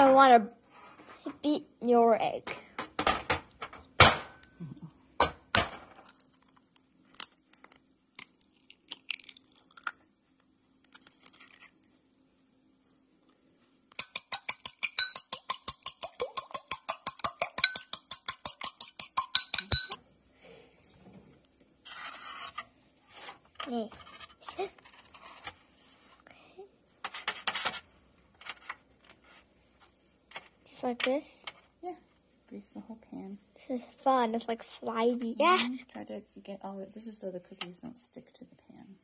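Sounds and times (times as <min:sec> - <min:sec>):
egg cracking on ceramic bowl: 0:06.1 - 0:10.0, 0:13.9 - 0:20.0
utensil beating egg in bowl: 0:14.0 - 0:20.0.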